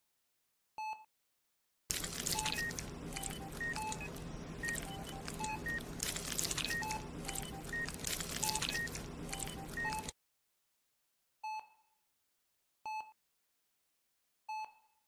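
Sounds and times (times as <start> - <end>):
low steady hum: 1.9 - 10.1.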